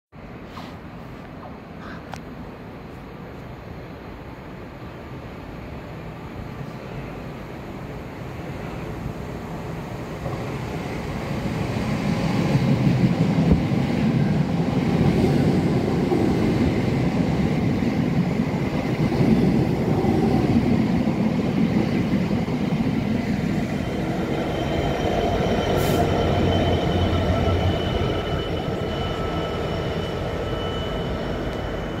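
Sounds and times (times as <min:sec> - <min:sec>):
diesel locomotive engine droning: 0:06.4 - 0:32.0
train wheels rumbling on rails: 0:08.5 - 0:32.0
high whining tones: 0:23.0 - 0:32.0.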